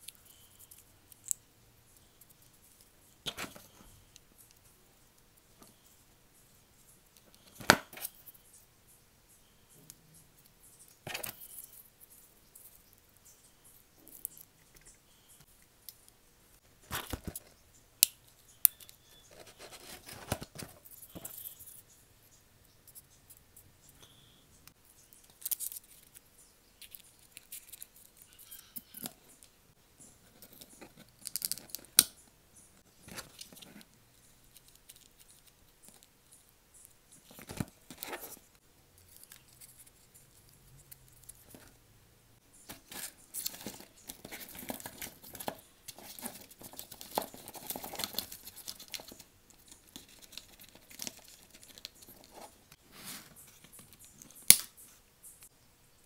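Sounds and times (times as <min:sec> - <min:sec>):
rustling and scraping: 0:19.2 - 0:22.0, 0:37.2 - 0:41.8, 0:42.6 - 0:55.5
cardboard and wooden sticks clicking: 0:42.7 - 0:52.8.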